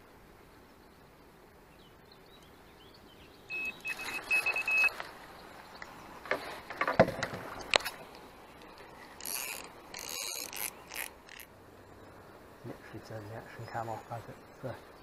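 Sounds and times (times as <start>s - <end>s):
bite alarm high beeps: 3.5s - 4.9s
handling knocks and clicks: 5.8s - 8.0s.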